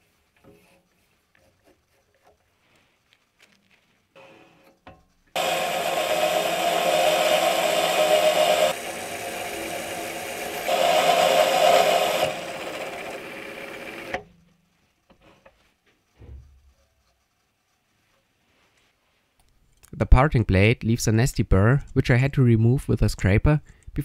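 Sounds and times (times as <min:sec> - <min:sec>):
lathe whining: 0:05.3 - 0:14.2.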